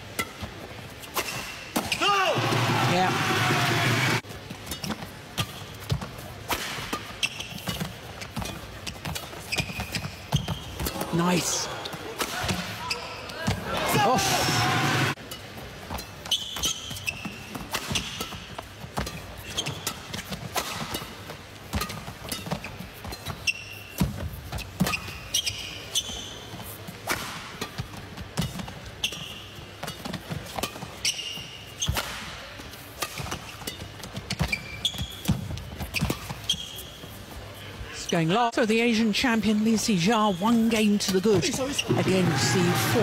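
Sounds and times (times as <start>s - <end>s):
shoes squeaking: 0.0s - 43.0s
racket hitting shuttlecock: 15.9s - 24.2s, 31.8s - 36.4s.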